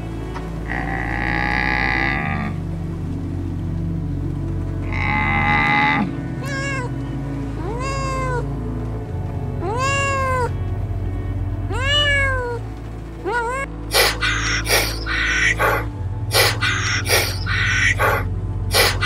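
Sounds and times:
background music: 0.0 - 19.0
cat meowing: 6.4 - 6.9, 9.6 - 10.5, 11.7 - 12.6.

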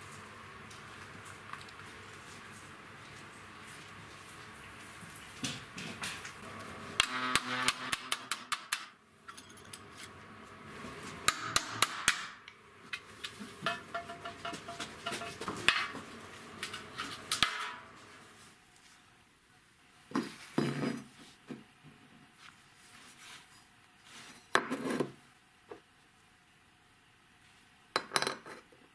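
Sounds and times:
metal tool tapping and scraping: 13.6 - 16.0.

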